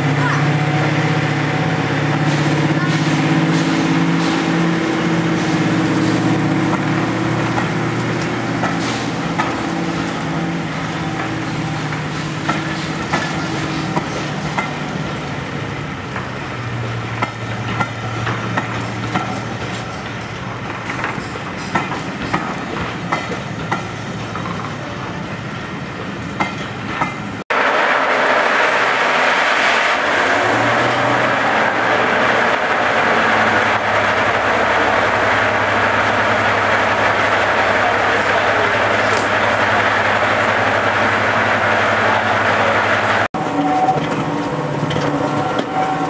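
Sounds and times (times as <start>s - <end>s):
diesel locomotive engine droning: 0.0s - 46.0s
train wheels clicking over joints: 5.3s - 15.2s, 16.0s - 24.8s.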